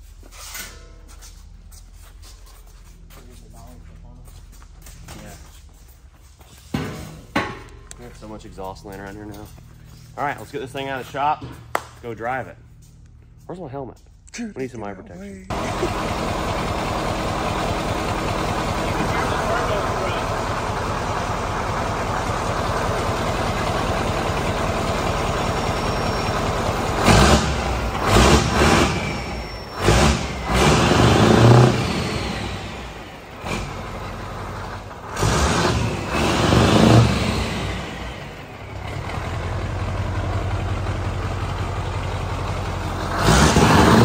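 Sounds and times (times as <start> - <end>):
diesel truck engine idling: 15.5 - 44.0
engine revving blips: 23.1 - 40.6, 42.4 - 44.0.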